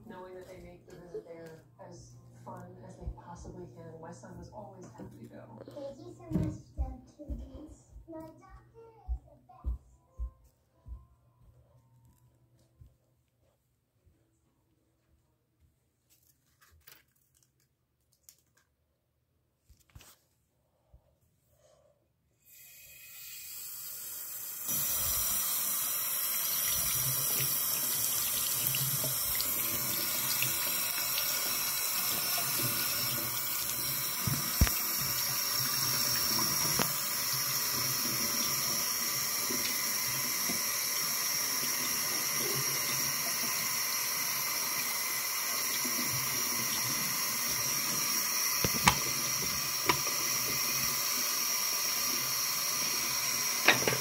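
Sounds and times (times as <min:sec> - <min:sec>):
faucet water splashing into basin: 0:23.2 - 0:54.0.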